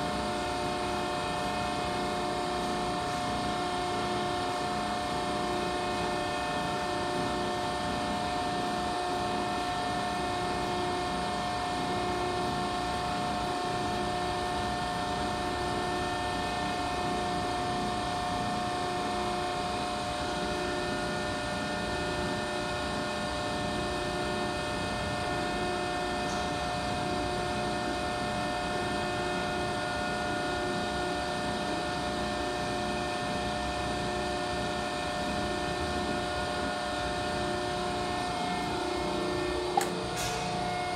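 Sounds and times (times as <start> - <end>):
hydraulic machine hum: 23.6 - 40.9.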